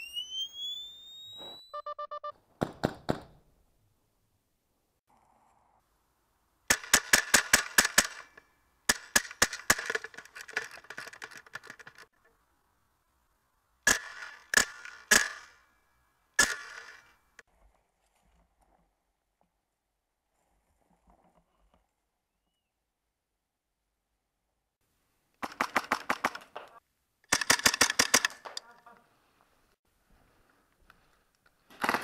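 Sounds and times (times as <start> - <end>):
short beeps: 0.0 - 2.4
airsoft gun shots: 6.7 - 8.3, 13.8 - 15.6, 16.4 - 17.1.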